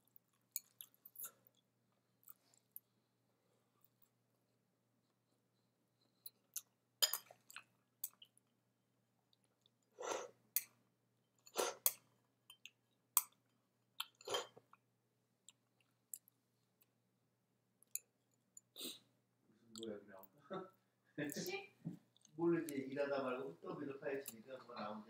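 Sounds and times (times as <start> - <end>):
person chewing food: 0.0 - 3.1, 6.0 - 8.6, 9.2 - 17.0, 17.8 - 19.0, 22.1 - 22.4.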